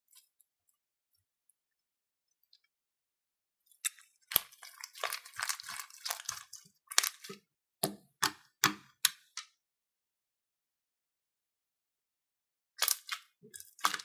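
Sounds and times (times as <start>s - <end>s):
slime crackling and clicking: 12.8s - 14.0s.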